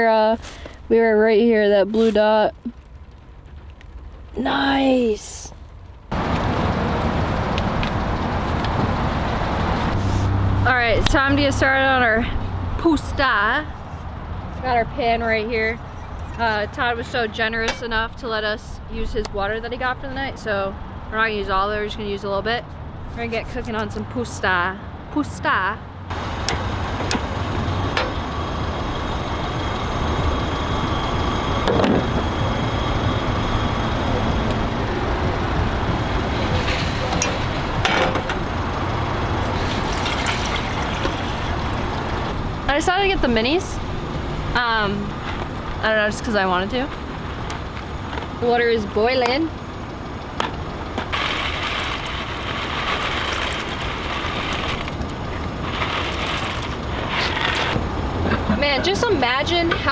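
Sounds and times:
low steady rumble: 0:00.0 - 0:59.9
stove flame rumbling: 0:01.6 - 0:11.2, 0:47.0 - 0:59.9
water pouring into saucepan: 0:39.5 - 0:41.6.

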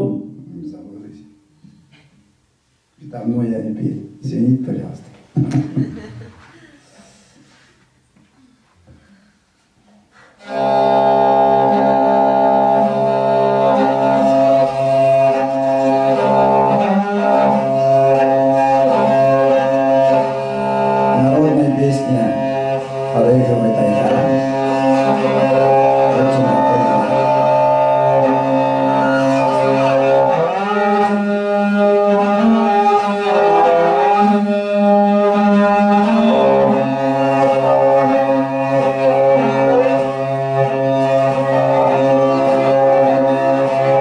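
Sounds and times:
bowed fiddle drone and melody: 0:10.4 - 0:44.0.

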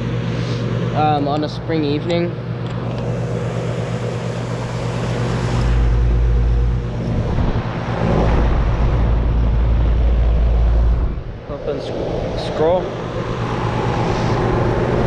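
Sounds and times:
compressor hum: 0:00.0 - 0:15.0
fan air rushing: 0:00.0 - 0:15.0
wind buffeting microphone: 0:05.7 - 0:15.0.

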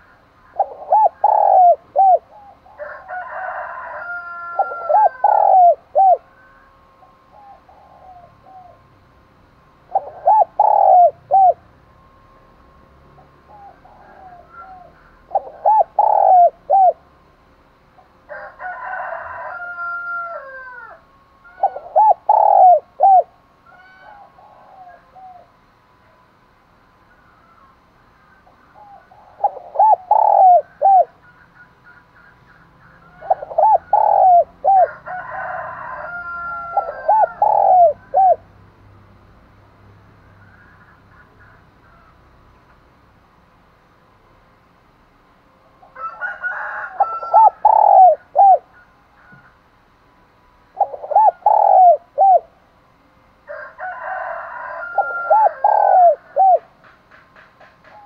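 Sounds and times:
dove cooing: 0:00.0 - 0:08.9, 0:09.8 - 0:11.7, 0:13.1 - 0:17.2, 0:18.3 - 0:25.7, 0:27.1 - 0:38.5, 0:45.8 - 0:49.6, 0:50.7 - 0:52.6, 0:53.5 - 0:56.8.

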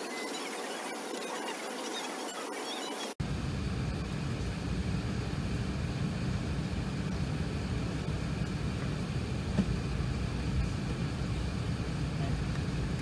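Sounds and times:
aircraft cabin rumble and hiss: 0:03.2 - 0:13.0.

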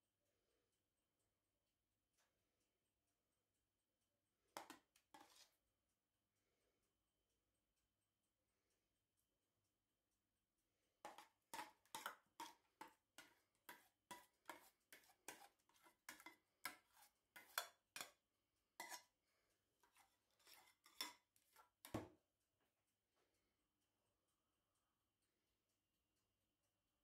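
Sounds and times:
metal spoon clinking on dishes: 0:11.1 - 0:18.2, 0:18.8 - 0:19.1, 0:19.9 - 0:21.2.

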